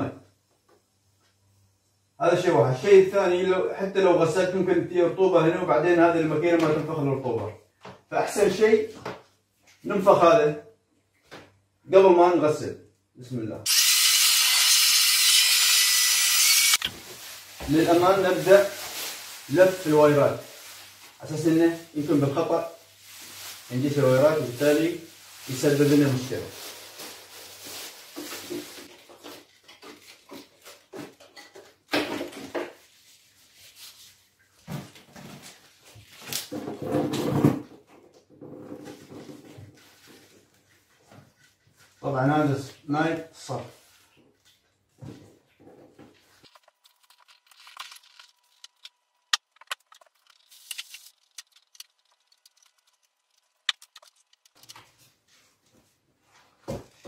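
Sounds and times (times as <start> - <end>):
plastic rustling: 16.8 - 36.9, 38.8 - 42.0, 45.3 - 57.0
wires rustling and clicking: 46.2 - 55.1.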